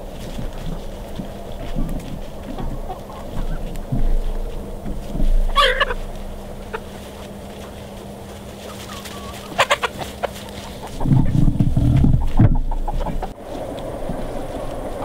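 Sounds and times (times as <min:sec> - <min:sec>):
loud low rumble: 0:00.0 - 0:08.6, 0:10.7 - 0:15.0
chickens clucking: 0:00.0 - 0:15.0
chickens short sharp calls: 0:05.4 - 0:07.2, 0:08.6 - 0:13.4.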